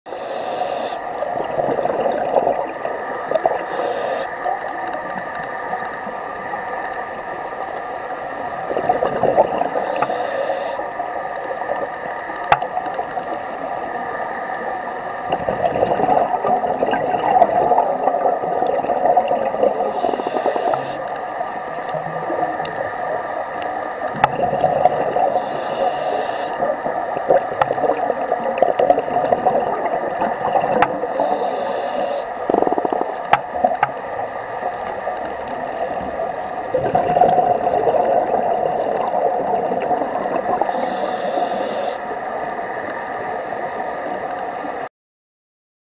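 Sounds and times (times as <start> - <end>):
diver breathing through regulator: 0.1 - 1.1, 3.4 - 4.4, 9.6 - 10.9, 19.6 - 21.1, 25.1 - 26.7, 31.0 - 33.0, 40.6 - 42.1
steady droning hum: 0.1 - 44.6
bubbling exhalations: 1.3 - 3.5, 8.6 - 9.9, 15.3 - 21.0, 24.1 - 25.5, 26.5 - 31.5, 32.4 - 33.8, 36.1 - 41.6.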